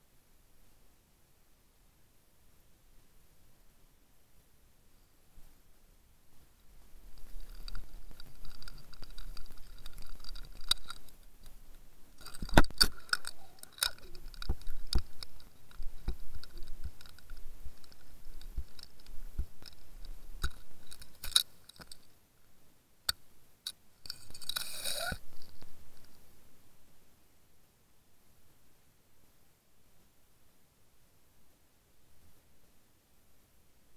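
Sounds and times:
scraping rustle: 6.9s - 22.1s
clicks and knocks underwater: 12.2s - 22.0s.

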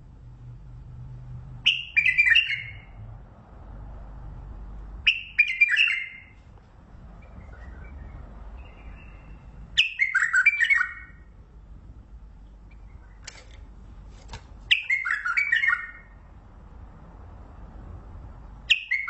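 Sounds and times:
bird singing warbled phrases: 1.6s - 3.1s, 5.0s - 6.4s, 7.1s - 11.4s, 12.6s - 13.6s, 14.7s - 16.3s, 18.6s - 19.0s.

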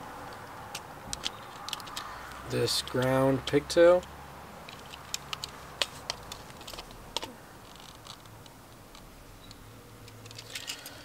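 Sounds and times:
small sharp clicks and ticks: 0.3s - 3.2s.

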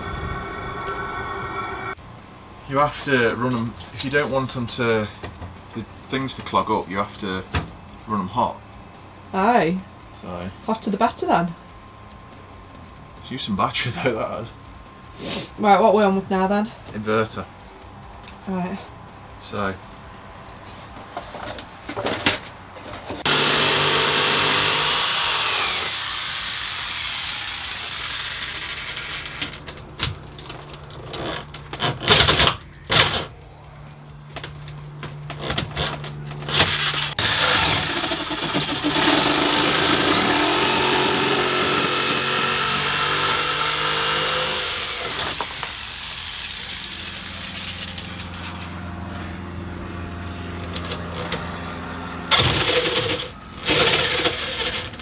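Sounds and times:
power tool cutting plywood: 23.2s - 29.6s, 36.5s - 48.0s, 52.3s - 55.0s.

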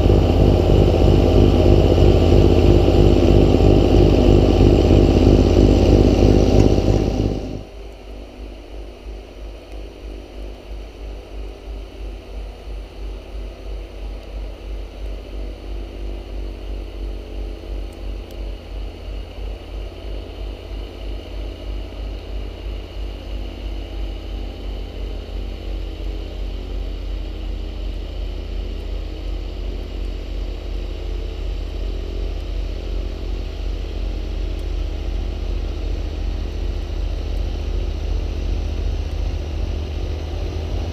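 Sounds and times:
tractor diesel engine under load: 0.0s - 7.7s.

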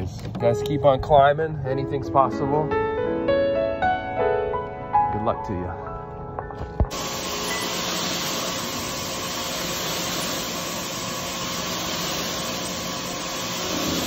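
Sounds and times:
pressure washer spraying water: 6.9s - 14.0s.

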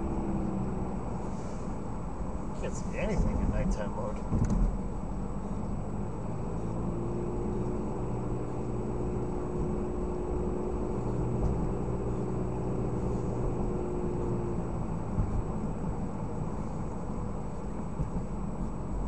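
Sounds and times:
car road and engine noise: 0.0s - 19.0s
steady hum: 0.0s - 19.0s.

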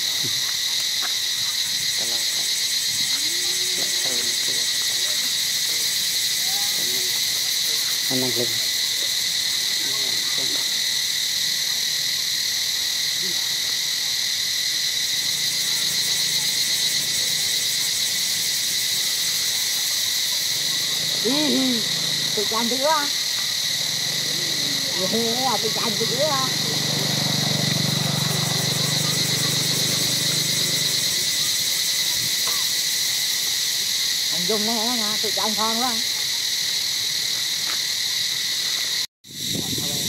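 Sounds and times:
high-pitched insect chorus: 0.0s - 40.0s
rising and falling animal calls: 23.7s - 31.4s.

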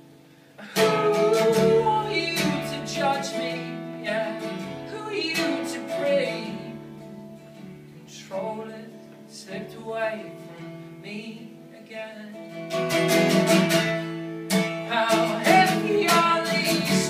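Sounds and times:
strummed acoustic guitar: 0.0s - 17.0s
man singing: 0.6s - 7.4s, 8.0s - 12.6s, 14.8s - 17.0s.

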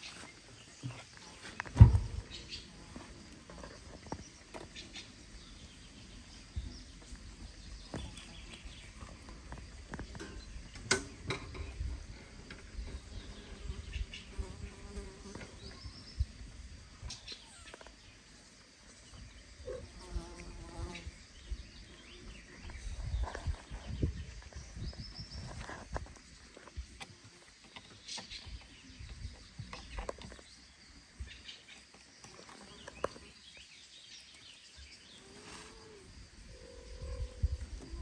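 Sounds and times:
insect buzzing: 12.0s - 16.6s, 19.6s - 22.0s, 35.0s - 38.0s.

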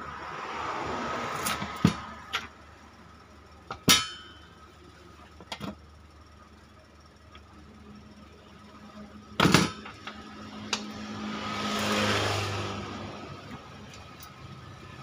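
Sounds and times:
metal clanks: 3.7s - 4.5s.

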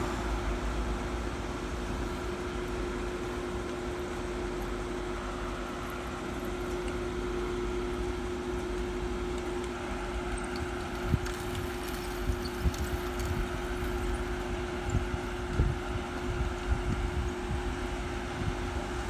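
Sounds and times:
car engines idling: 0.0s - 15.2s
wind buffeting microphone: 10.4s - 19.0s.

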